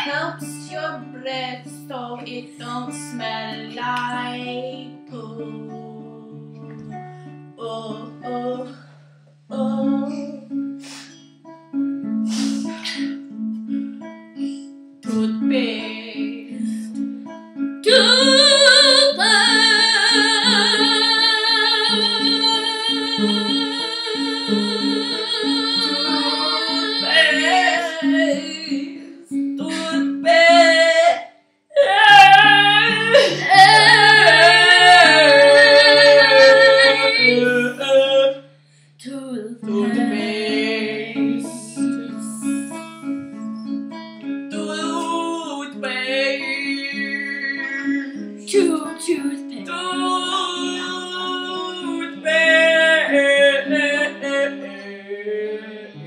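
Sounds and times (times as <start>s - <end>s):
child singing: 0.0s - 5.4s, 17.9s - 29.0s, 29.6s - 31.2s, 31.8s - 37.9s, 39.1s - 42.8s, 44.6s - 55.9s
acoustic guitar plucked: 0.0s - 56.0s.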